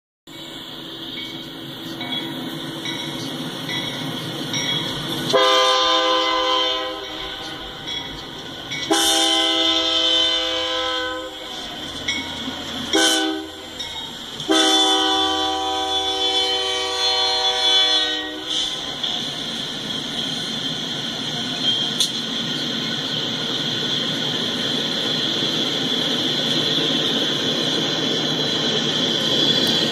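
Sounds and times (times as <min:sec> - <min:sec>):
locomotive air horn blasts: 0:05.3 - 0:07.6, 0:08.9 - 0:11.4, 0:12.9 - 0:13.7, 0:14.5 - 0:18.8.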